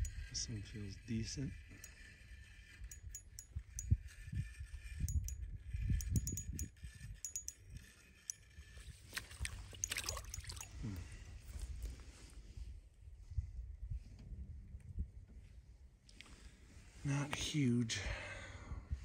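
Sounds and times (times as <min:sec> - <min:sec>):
water splashing and gurgling: 0:09.1 - 0:10.8.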